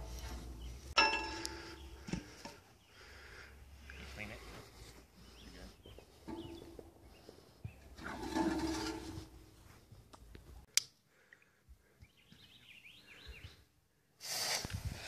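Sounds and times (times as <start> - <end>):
birds chirping faintly: 0.0 - 10.4, 11.1 - 14.0
ball scraping down metal barrel: 7.9 - 9.5.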